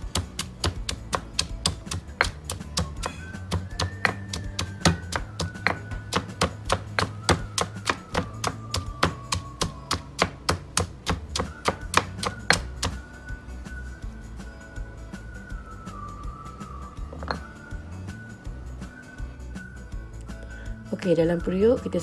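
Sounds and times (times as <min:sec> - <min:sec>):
stone pestle pounding in mortar: 0:00.0 - 0:13.0.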